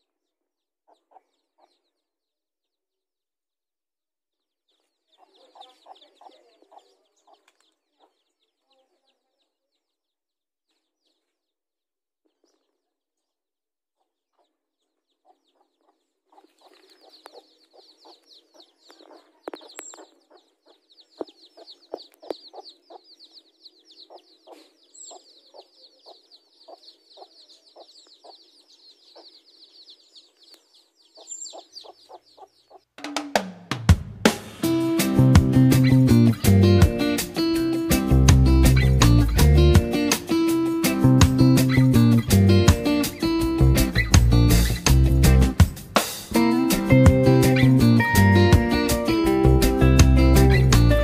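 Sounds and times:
chicks peeping: 0.8 - 2.1, 4.7 - 10.1, 10.7 - 11.4, 12.3 - 12.9, 14.0 - 33.0
hen clucking: 0.9 - 1.9, 4.7 - 9.5, 14.0 - 33.0
guitar music: 34.2 - 51.0.

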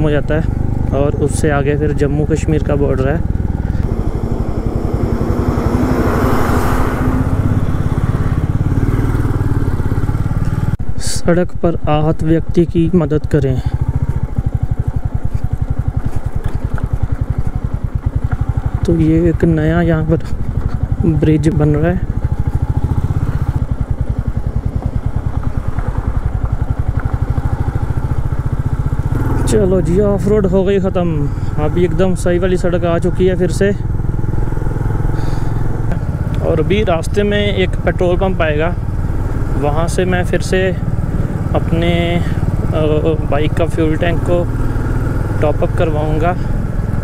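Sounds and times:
motorcycle engine running: 0.0 - 47.0
truck passing: 0.6 - 10.8, 32.9 - 47.0.

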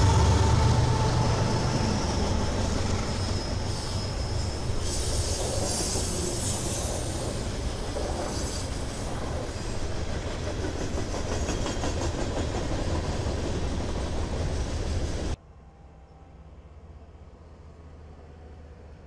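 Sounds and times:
high-pitched wheel squeal: 0.0 - 7.8
train wheels rumbling on rail: 0.0 - 15.4.

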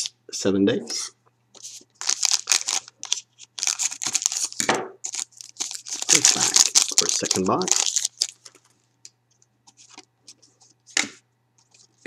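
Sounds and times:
foil packaging crinkling and tearing: 1.6 - 8.7.

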